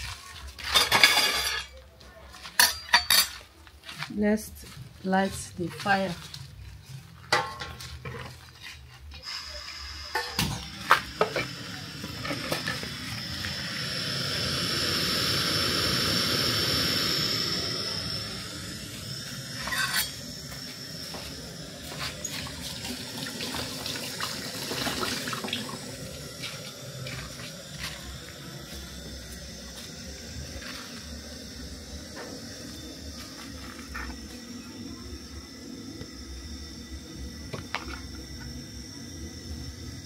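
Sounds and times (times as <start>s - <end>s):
gas burner hissing and whistling: 0.0s - 40.0s
plates and utensils clinking: 0.6s - 1.8s, 2.5s - 3.5s.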